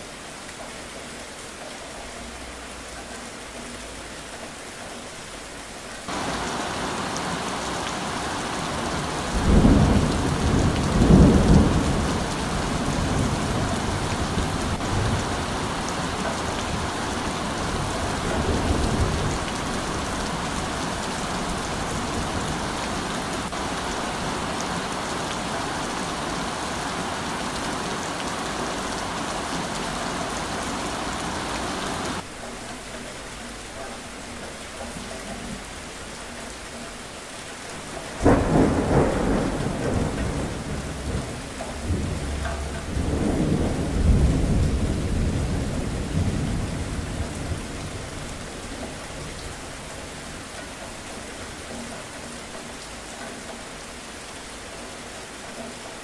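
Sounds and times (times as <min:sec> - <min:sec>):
heavy rain: 0:00.0 - 0:56.0
thunder rolling: 0:06.1 - 0:30.0, 0:38.2 - 0:48.2.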